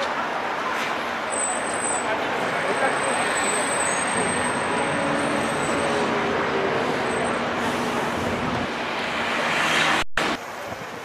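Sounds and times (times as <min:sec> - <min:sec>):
bus engine rumble: 0:00.0 - 0:11.0
traffic hiss: 0:05.1 - 0:11.0.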